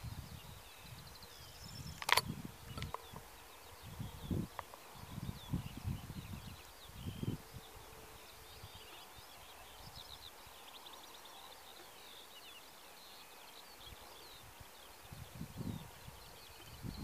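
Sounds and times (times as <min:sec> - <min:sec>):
wind rumble on microphone: 0:00.0 - 0:10.6, 0:13.8 - 0:17.0
songbirds chirping and trilling: 0:00.0 - 0:17.0.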